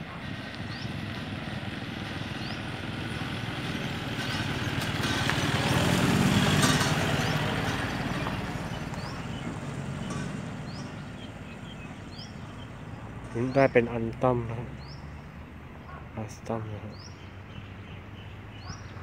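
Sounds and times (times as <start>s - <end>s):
pickup truck driving past: 0.1s - 15.8s.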